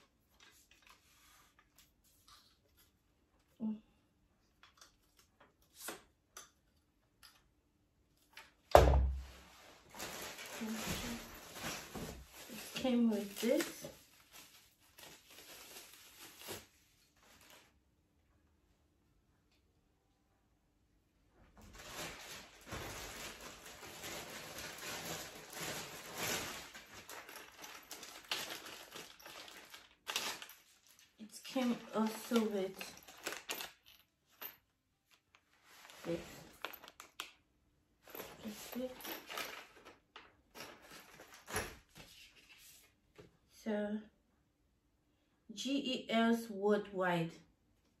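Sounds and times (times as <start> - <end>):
plastic packaging crinkling: 9.8 - 17.8, 21.6 - 34.0.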